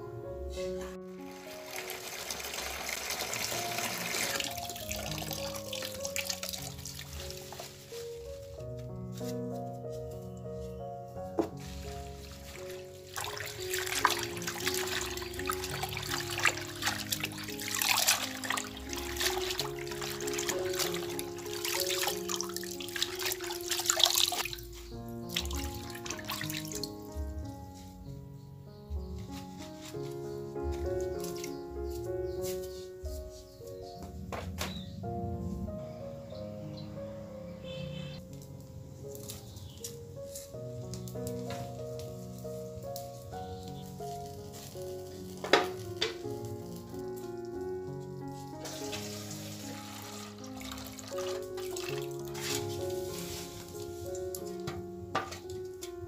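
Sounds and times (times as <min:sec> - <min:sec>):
background music: 0:00.0 - 0:56.0
tap water splashing into basin: 0:01.6 - 0:06.7, 0:13.2 - 0:24.5.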